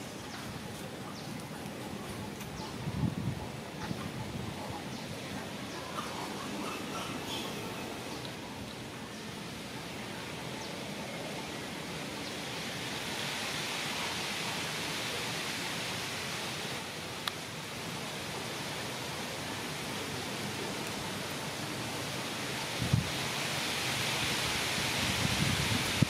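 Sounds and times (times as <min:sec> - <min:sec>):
outdoor background hiss: 0:00.0 - 0:26.0.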